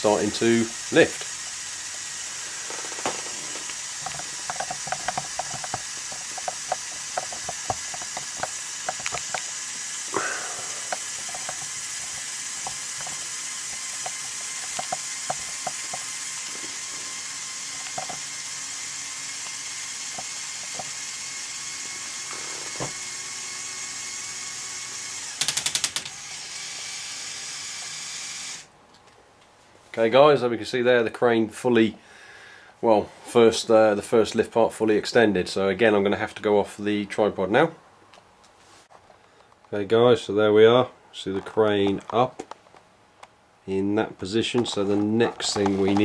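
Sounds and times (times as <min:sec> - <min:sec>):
toy motor whine: 0:00.0 - 0:28.7, 0:44.6 - 0:46.0
plastic gear clicks: 0:02.7 - 0:10.0, 0:10.8 - 0:18.5, 0:25.2 - 0:26.2, 0:44.5 - 0:46.0.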